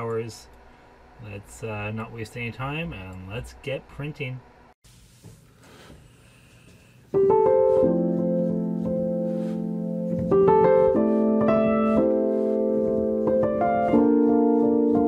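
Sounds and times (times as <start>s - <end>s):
slow piano chords: 7.1s - 15.0s.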